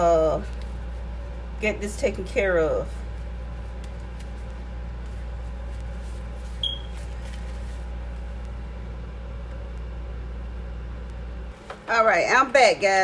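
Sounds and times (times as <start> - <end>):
low electrical hum: 0.0 - 13.0
short high electronic beep: 6.6 - 6.9.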